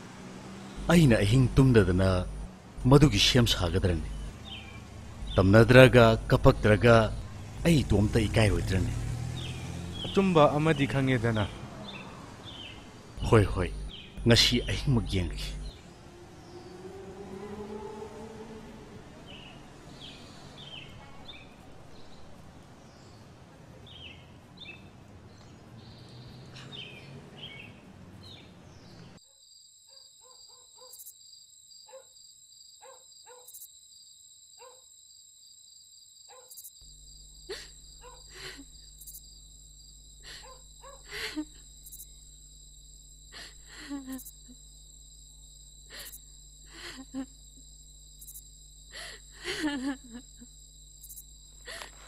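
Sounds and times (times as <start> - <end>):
small birds chirping: 0.5 - 17.0, 19.2 - 29.2, 36.3 - 47.4
low hum: 0.7 - 10.0, 13.1 - 19.6
high electrical whine: 0.8 - 9.1, 13.2 - 15.9.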